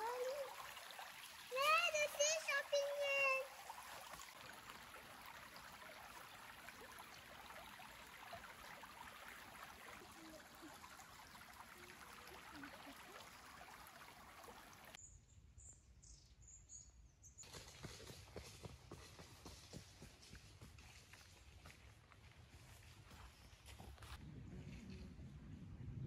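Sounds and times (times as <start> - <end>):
stream running over rocks: 0.0 - 15.0.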